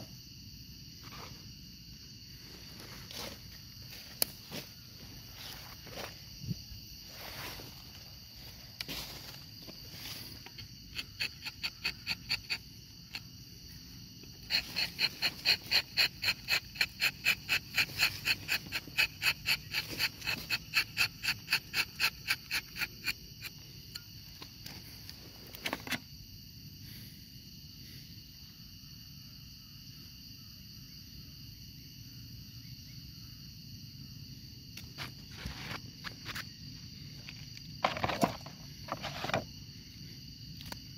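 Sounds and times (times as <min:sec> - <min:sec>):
high insect drone: 0:00.0 - 0:40.9
knife scraping tree bark: 0:10.3 - 0:13.3, 0:14.2 - 0:23.6, 0:34.8 - 0:36.5, 0:37.3 - 0:39.5.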